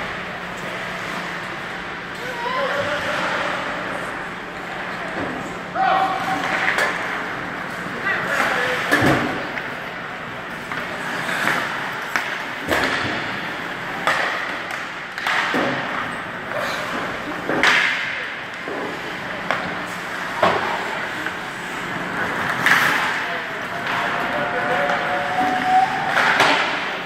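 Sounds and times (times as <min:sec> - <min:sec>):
rink background noise: 0:00.0 - 0:27.0
hockey sticks and pucks knocking: 0:06.4 - 0:07.2, 0:10.5 - 0:27.0.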